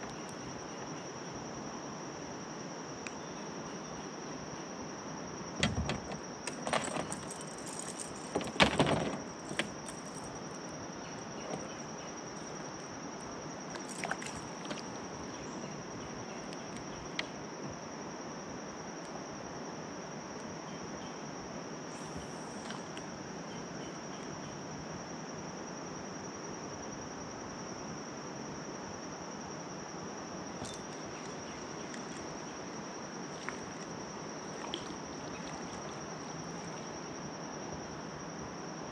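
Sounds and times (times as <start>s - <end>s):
insects droning: 0.0s - 38.9s
knocks and rattles: 5.6s - 10.5s, 11.3s - 12.5s.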